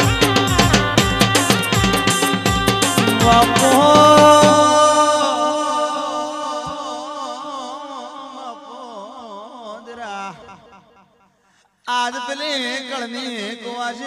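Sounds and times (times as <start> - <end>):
drums: 0.0 - 5.1
person singing long note: 2.7 - 7.4.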